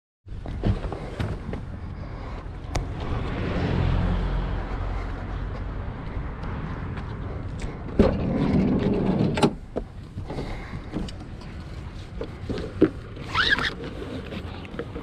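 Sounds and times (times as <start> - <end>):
high squeak: 13.3 - 13.8.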